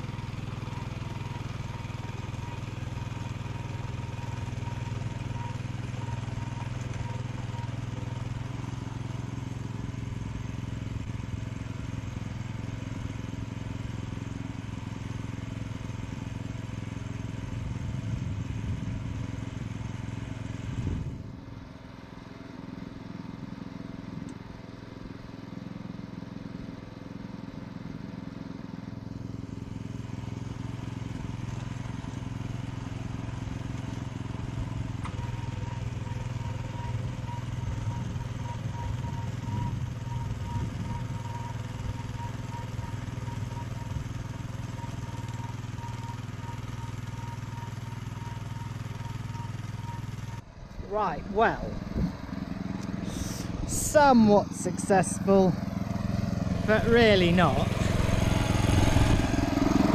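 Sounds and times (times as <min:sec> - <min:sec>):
small petrol tiller engine running: 0:00.0 - 0:59.9.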